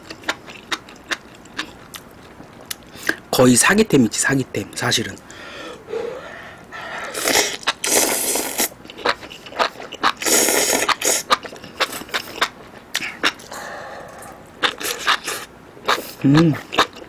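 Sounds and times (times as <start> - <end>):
slurping noodles: 7.0 - 8.8, 10.1 - 11.3
wet chewing: 7.0 - 17.0.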